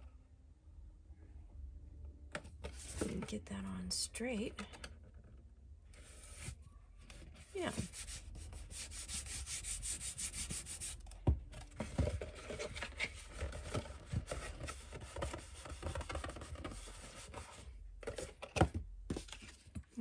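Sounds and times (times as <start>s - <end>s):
hands rubbing paper: 7.6s - 11.0s.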